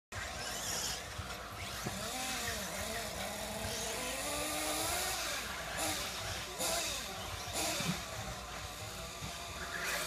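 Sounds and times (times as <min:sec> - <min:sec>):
rc car motors revving: 0:00.1 - 0:10.0.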